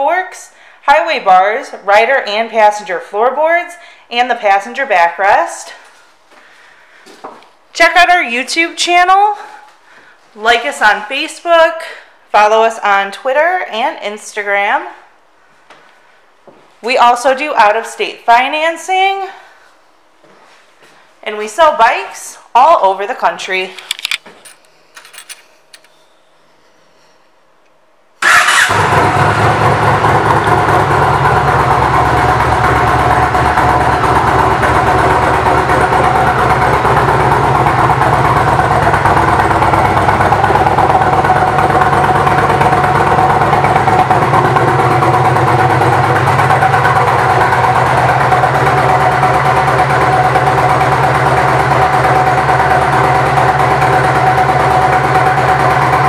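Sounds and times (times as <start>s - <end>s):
motorcycle engine starting and idling: 28.2s - 56.0s.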